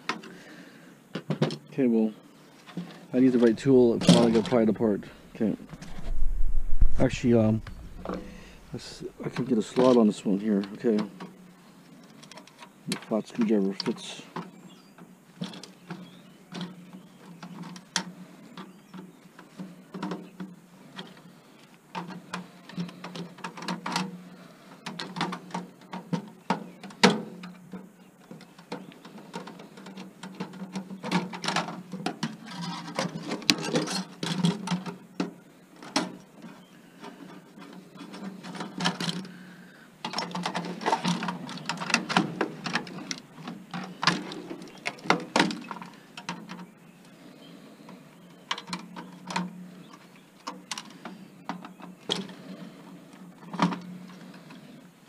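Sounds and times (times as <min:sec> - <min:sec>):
steady low hum: 0:03.2 - 0:12.0.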